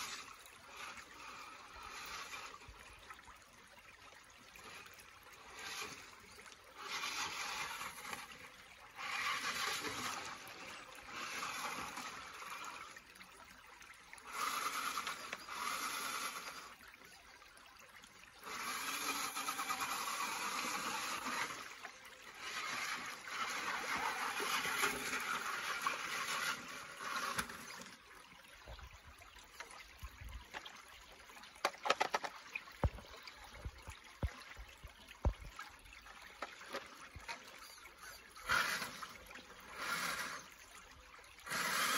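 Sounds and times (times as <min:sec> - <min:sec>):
toy truck splashing through water: 0:00.0 - 0:13.3, 0:13.9 - 0:17.1, 0:18.0 - 0:28.1, 0:29.5 - 0:33.3, 0:35.2 - 0:41.9
creek trickling: 0:00.0 - 0:41.9
clicks and knocks on rocks: 0:31.6 - 0:34.4.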